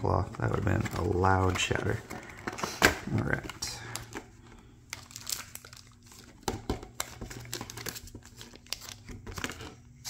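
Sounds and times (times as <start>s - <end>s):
cardboard rustling: 0.0s - 4.4s
plastic wrapping crinkling: 0.0s - 9.9s.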